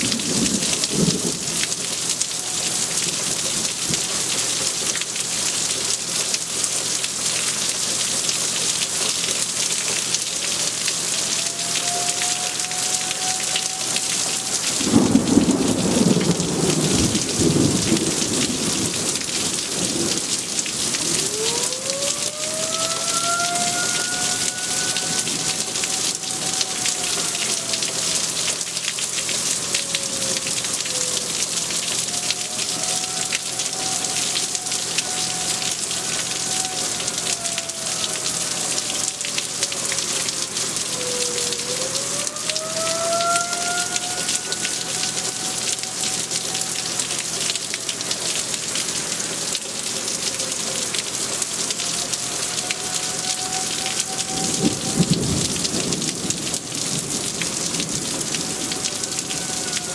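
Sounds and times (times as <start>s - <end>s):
heavy rain on trees: 0.0s - 59.9s
faint wailing tone: 11.0s - 16.5s, 20.9s - 28.7s, 29.8s - 39.4s, 40.9s - 49.4s, 51.6s - 55.4s, 58.4s - 59.9s
thunder rumble: 13.7s - 27.8s.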